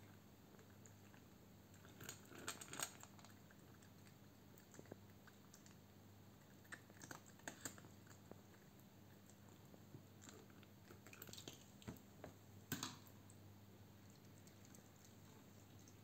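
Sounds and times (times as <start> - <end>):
faint low hum: 0.0 - 16.0
cat crunching dry food: 0.6 - 5.8, 6.4 - 11.8.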